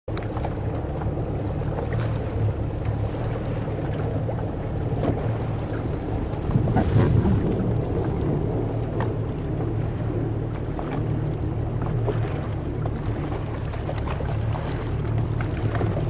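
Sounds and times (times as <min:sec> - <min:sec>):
choppy water against hull: 0:00.1 - 0:16.0
motorboat engine humming: 0:00.1 - 0:16.0
wind on microphone: 0:01.0 - 0:13.6.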